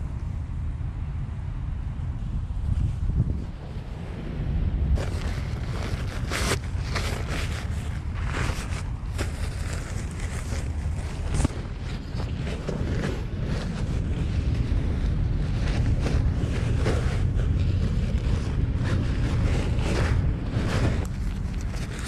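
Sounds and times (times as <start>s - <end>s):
wind buffeting microphone: 0.0s - 22.0s
gear rustling and handling noise: 5.0s - 22.0s.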